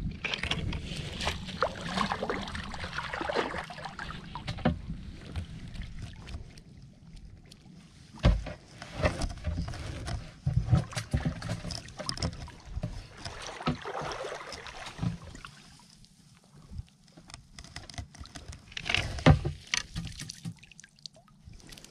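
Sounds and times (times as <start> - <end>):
nets splashing through seawater: 0.1 - 7.1, 7.7 - 16.0.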